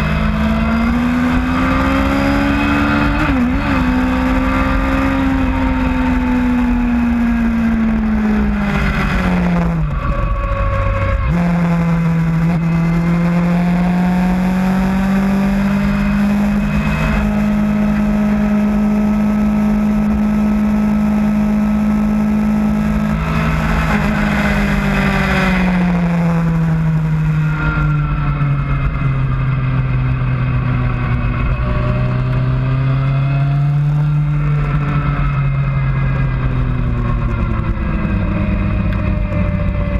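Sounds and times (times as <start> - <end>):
sports motorcycle engine: 0.0 - 39.9
wind rush over microphone: 5.4 - 13.2.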